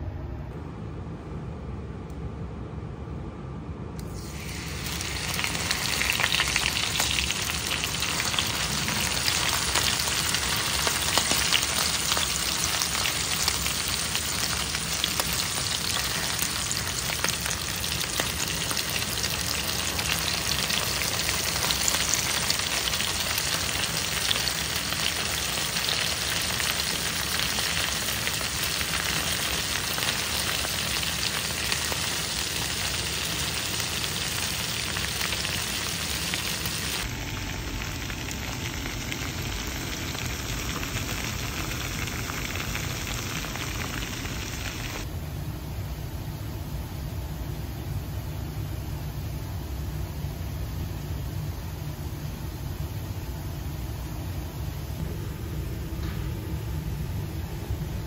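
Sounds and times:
meat frying in hot oil: 4.1s - 45.1s.

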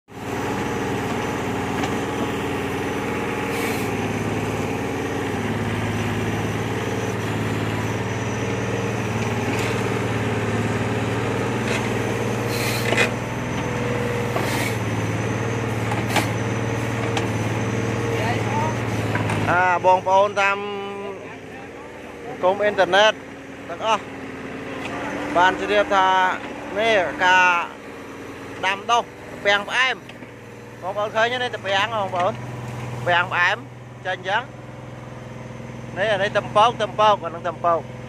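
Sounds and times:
excavator engine running: 0.1s - 38.0s.

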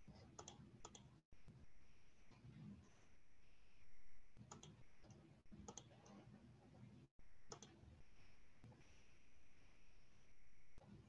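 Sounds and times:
computer mouse clicking: 0.0s - 1.2s, 4.4s - 6.4s, 7.5s - 7.8s.

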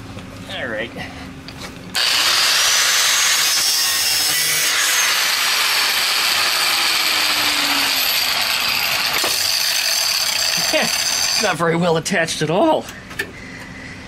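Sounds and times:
power cutting tool grinding metal: 2.0s - 11.6s.

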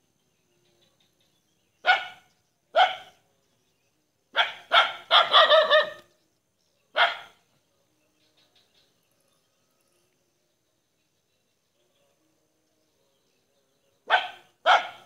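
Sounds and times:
dog barking: 1.8s - 3.2s, 4.3s - 6.1s, 6.9s - 7.4s, 14.0s - 15.0s.

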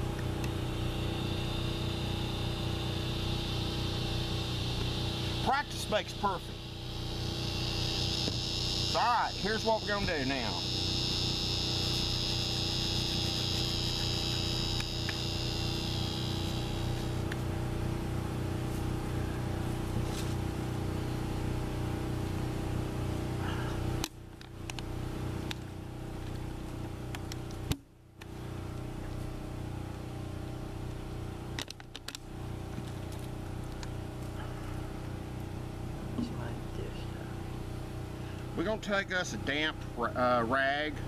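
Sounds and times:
low mechanical hum: 0.0s - 41.0s
high insect buzz: 0.5s - 17.4s.

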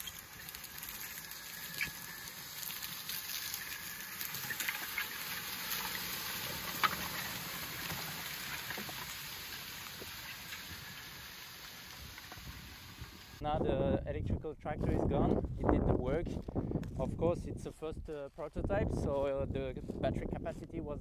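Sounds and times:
disc harrow crackling through stubble: 0.0s - 13.4s.

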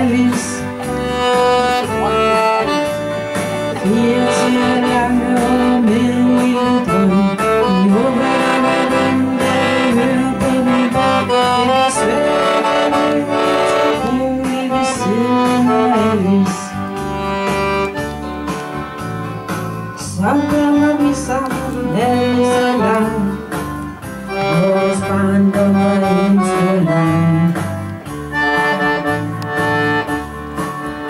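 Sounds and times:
button accordion playing chords: 0.0s - 31.0s
woman singing into a microphone: 3.8s - 12.6s, 20.0s - 23.5s.

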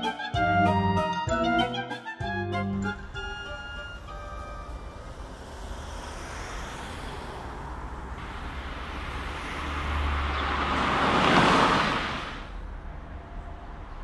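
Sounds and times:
low street hum: 2.5s - 14.0s
car passing by: 2.9s - 14.0s.

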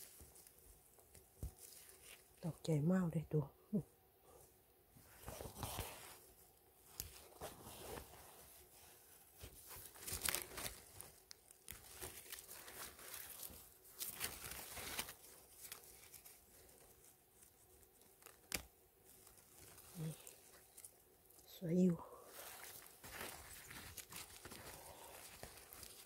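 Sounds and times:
dry leaves rustling and crackling: 0.0s - 2.4s, 9.4s - 26.0s.

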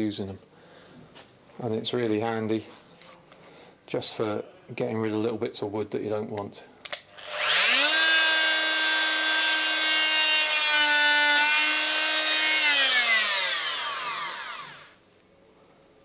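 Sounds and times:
oscillating multi-tool cutting wood: 7.1s - 15.0s.

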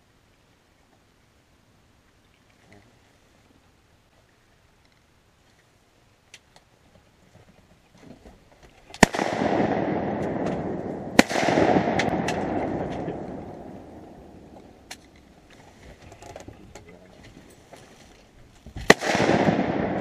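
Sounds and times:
shotgun shots: 9.0s - 14.4s, 18.9s - 20.0s.

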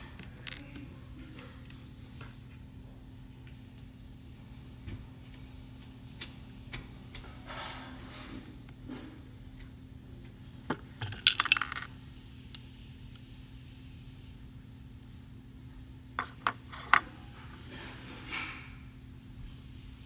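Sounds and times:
plastic pieces set on tabletop: 0.0s - 0.8s, 10.7s - 11.9s, 16.2s - 17.6s.

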